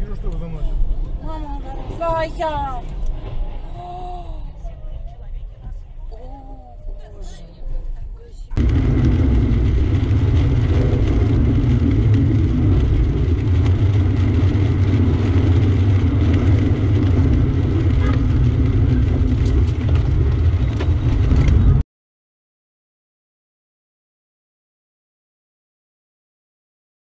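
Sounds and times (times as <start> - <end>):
car road and tyre rumble: 0.0 - 21.8.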